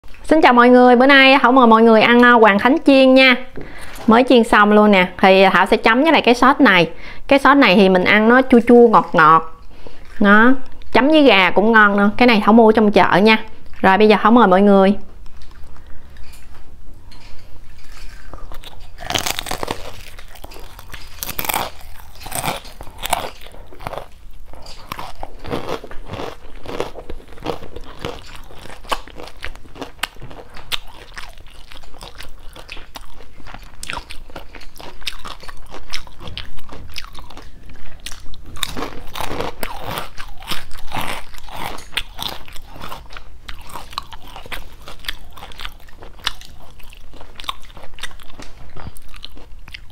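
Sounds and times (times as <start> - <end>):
crunching and chewing fried food: 15.3 - 49.9.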